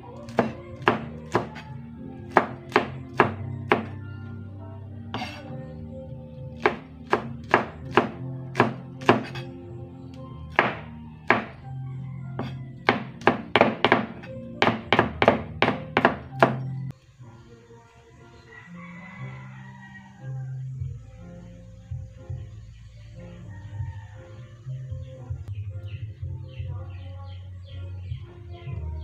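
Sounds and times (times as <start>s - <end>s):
background music: 0.0s - 29.0s
knife chopping on cutting board: 6.6s - 9.5s, 10.5s - 11.5s.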